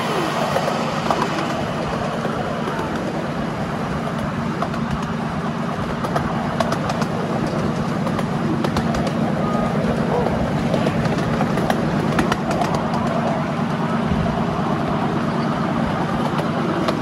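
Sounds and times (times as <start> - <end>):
miniature train rumbling on rails: 0.0 - 17.0.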